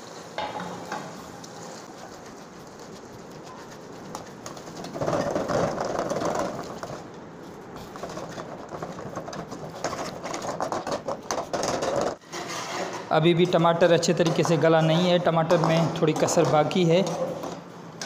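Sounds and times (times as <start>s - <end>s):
metal skimmer scraping a pot: 8.0s - 17.6s.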